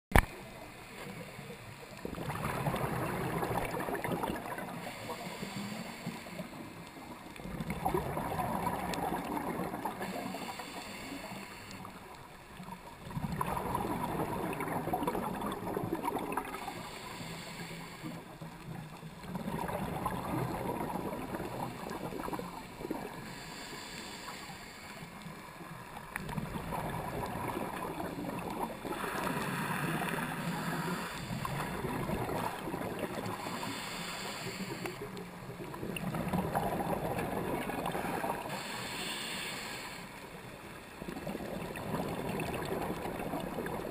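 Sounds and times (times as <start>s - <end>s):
regulator bubbling exhalations: 2.0s - 5.6s, 7.4s - 10.6s, 13.1s - 17.5s, 19.3s - 23.6s, 26.2s - 35.1s
regulator breathing hiss: 4.8s - 6.8s, 10.0s - 12.0s, 16.5s - 18.4s, 23.1s - 25.2s, 29.0s - 31.7s, 33.3s - 35.2s, 38.4s - 40.3s.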